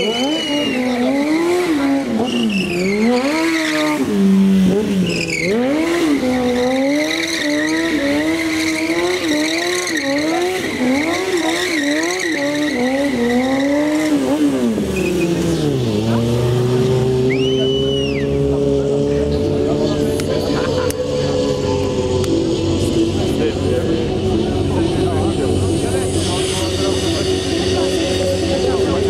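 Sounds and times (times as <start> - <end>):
tyre squealing on paving: 0.0 - 4.2, 5.0 - 15.9
motorcycle engine revving: 0.0 - 29.0.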